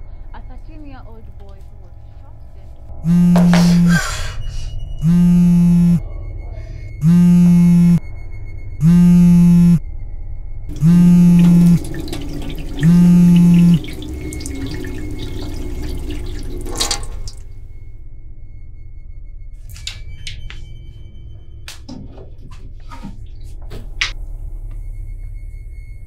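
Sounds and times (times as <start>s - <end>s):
phone vibrating on wooden table: 3.0s - 4.1s, 5.0s - 6.0s, 7.0s - 8.1s, 8.8s - 9.8s, 10.7s - 11.8s, 12.8s - 13.8s
water running from tap: 10.7s - 17.5s.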